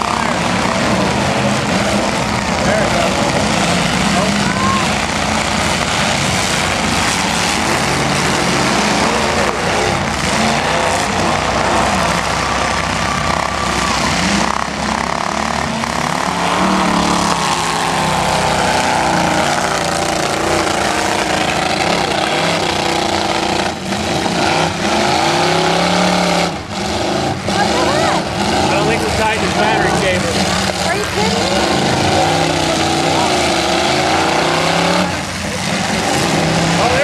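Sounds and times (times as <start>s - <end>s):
truck engines revving hard: 0.0s - 37.0s.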